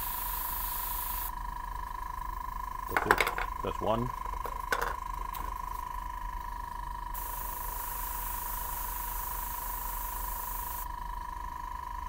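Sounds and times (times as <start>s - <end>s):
airbrush spraying air hiss: 0.0s - 1.3s, 7.2s - 10.9s.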